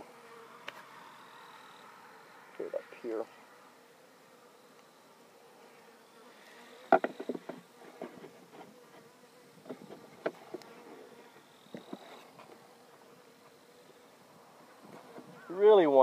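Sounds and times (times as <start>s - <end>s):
honeybees buzzing: 0.0s - 16.0s
sharp clicks and knocks: 6.9s - 8.2s.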